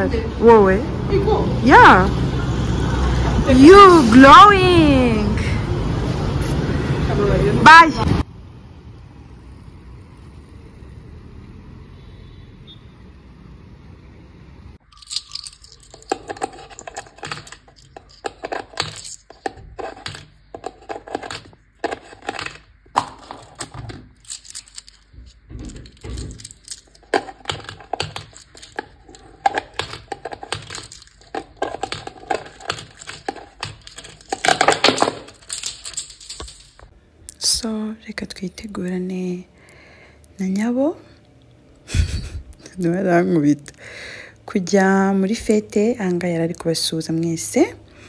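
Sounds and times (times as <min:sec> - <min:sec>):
coins clinking into money box: 0:14.8 - 0:36.9.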